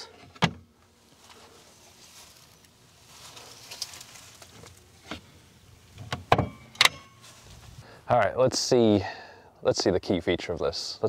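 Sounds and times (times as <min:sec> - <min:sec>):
latch clicks: 0:06.0 - 0:07.2.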